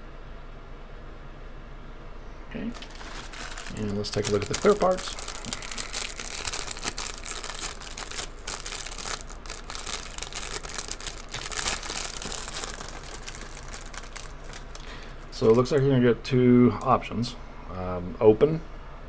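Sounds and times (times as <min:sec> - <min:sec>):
plastic bag crinkling: 0:02.7 - 0:15.9.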